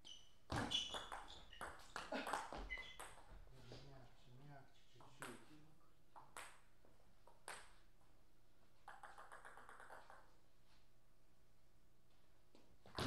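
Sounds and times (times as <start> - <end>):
table tennis ball bouncing: 0.5 - 3.4, 6.2 - 6.7, 8.8 - 10.3.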